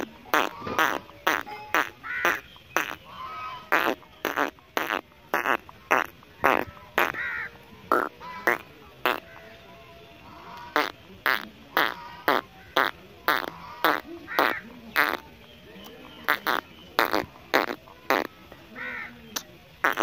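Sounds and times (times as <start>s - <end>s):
raspy animal calls: 0.0s - 9.6s, 10.2s - 15.4s, 16.1s - 19.1s.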